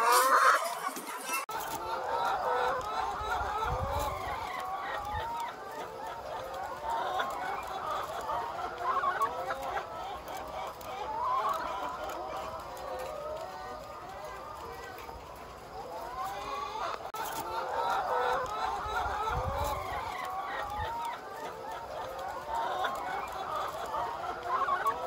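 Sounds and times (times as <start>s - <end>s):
hens clucking: 0.0s - 25.0s.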